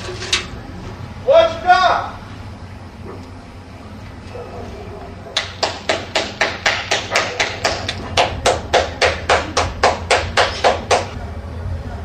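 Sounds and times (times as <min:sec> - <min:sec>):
rapid sharp knocking: 0:05.4 - 0:11.2.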